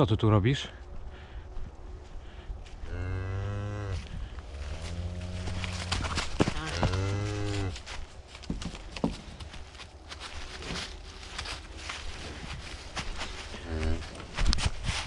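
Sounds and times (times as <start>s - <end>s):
rustling in dry leaves: 2.0s - 15.0s
cattle mooing: 2.9s - 7.8s.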